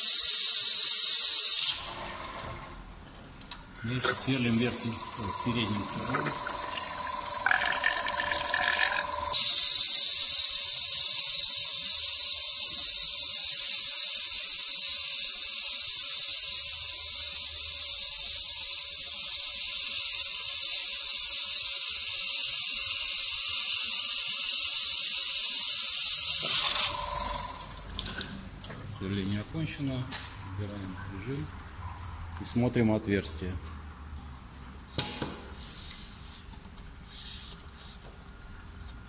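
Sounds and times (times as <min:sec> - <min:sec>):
drill bit grinding into glass: 0:03.6 - 0:21.0, 0:21.6 - 0:28.6
faint motor hum: 0:03.9 - 0:09.4.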